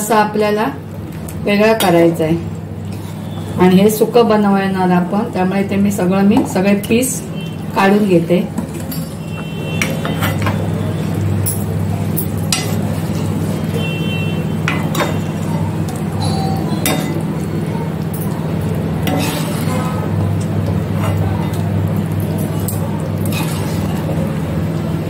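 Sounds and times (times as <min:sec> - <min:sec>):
ladle scraping metal pot: 0:19.0 - 0:21.6, 0:23.2 - 0:24.1.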